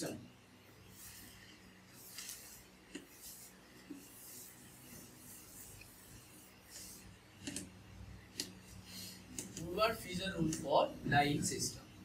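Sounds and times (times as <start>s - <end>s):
eraser rubbing on chalkboard: 0.8s - 7.7s.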